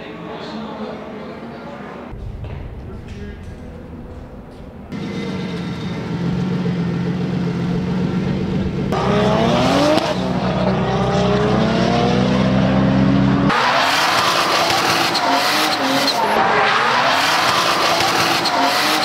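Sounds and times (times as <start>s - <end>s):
engine revving: 2.2s - 19.0s
tyres squealing and skidding: 13.5s - 19.0s.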